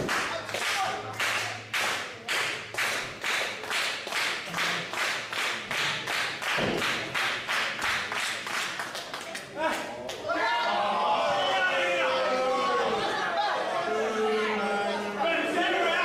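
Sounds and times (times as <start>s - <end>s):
crowd clapping in unison: 0.0s - 10.3s.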